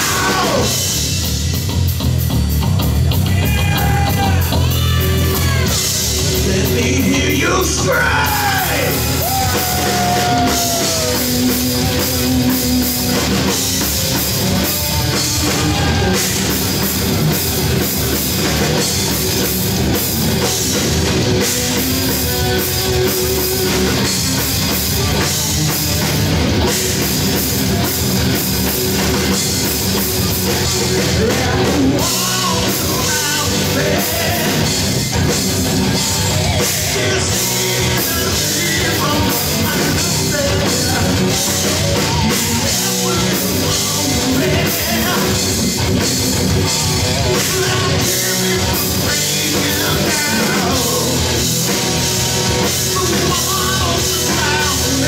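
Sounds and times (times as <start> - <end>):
person singing: 0.0 - 0.8, 3.2 - 13.6, 30.6 - 45.8, 46.6 - 55.0
drum kit: 0.0 - 55.0
electric guitars: 0.0 - 55.0.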